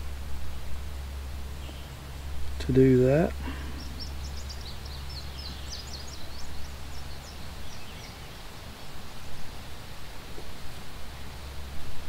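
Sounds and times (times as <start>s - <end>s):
low background hum: 0.0s - 12.0s
small bird chirping: 1.5s - 2.0s, 3.3s - 8.9s.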